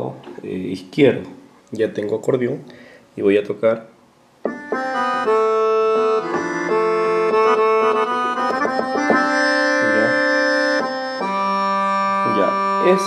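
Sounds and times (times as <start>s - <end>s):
keyboard accordion chords: 4.4s - 13.0s.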